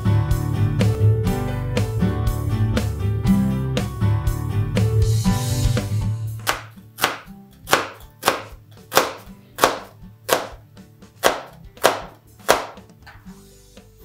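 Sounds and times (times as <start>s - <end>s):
knife slicing onion on cutting board: 6.4s - 13.0s.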